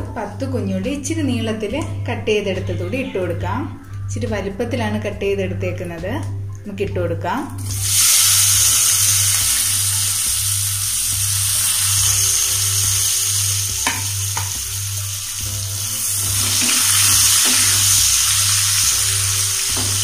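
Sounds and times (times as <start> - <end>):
shallots sizzling in oil: 7.6 - 20.0.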